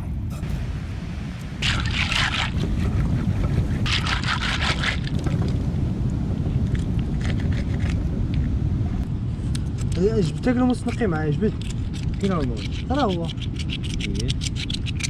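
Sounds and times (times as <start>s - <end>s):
wind and surf rumble: 0.0s - 15.0s
water swishing and splashing: 0.4s - 8.7s.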